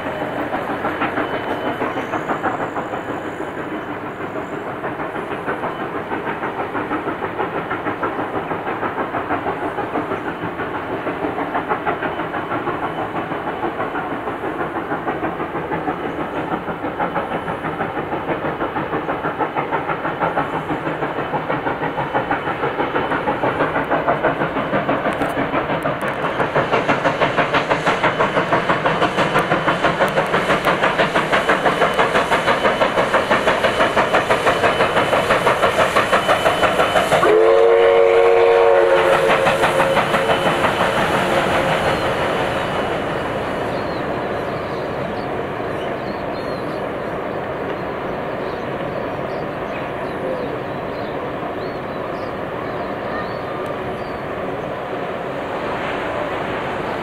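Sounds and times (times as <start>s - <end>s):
steam locomotive exhaust beats: 0.0s - 57.0s
steam whistle chord: 37.1s - 40.2s.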